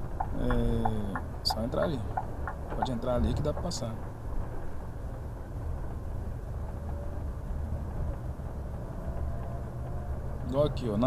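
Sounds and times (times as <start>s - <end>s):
bus engine rumble: 0.0s - 11.0s
road noise: 0.0s - 11.0s.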